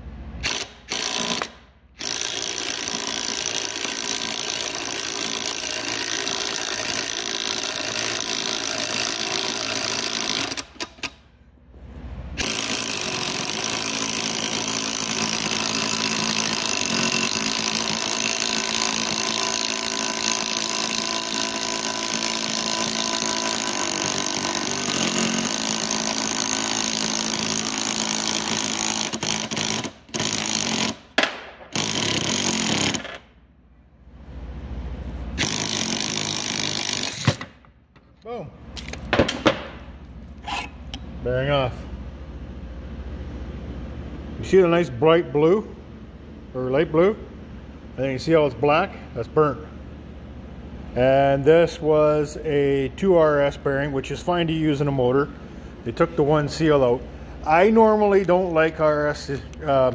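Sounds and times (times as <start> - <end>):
impact wrench running: 0.4 - 11.3, 12.3 - 33.3, 35.3 - 37.7.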